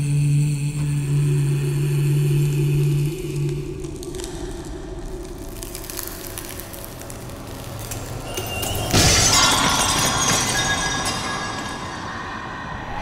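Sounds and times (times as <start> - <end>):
dark cinematic score: 0.0 - 13.0
glass-like shattering impact: 7.9 - 12.4.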